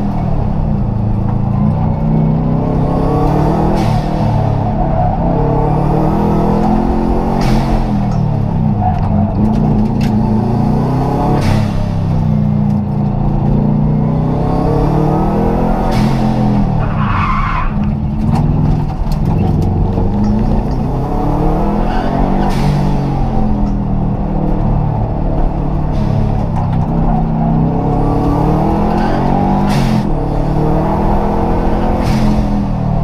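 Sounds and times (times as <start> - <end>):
rally car engine revving: 0.0 - 33.0
tyre squeal: 16.8 - 17.9.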